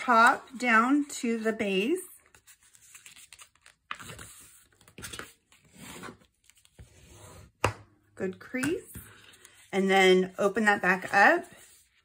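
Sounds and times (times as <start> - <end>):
paper folding rustles: 0.0 - 7.0.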